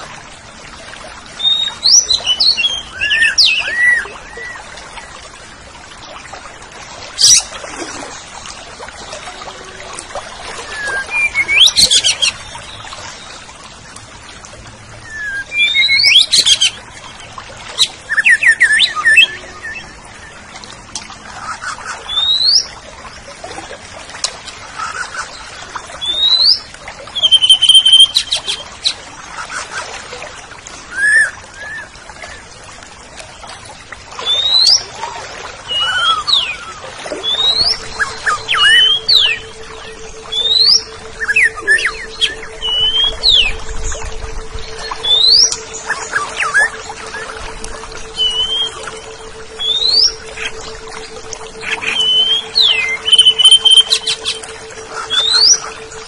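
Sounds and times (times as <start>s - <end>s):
thrush singing whistled phrases: 1.4s - 4.6s, 10.6s - 12.8s, 15.0s - 16.8s, 17.8s - 20.3s, 27.2s - 28.6s, 35.7s - 56.0s.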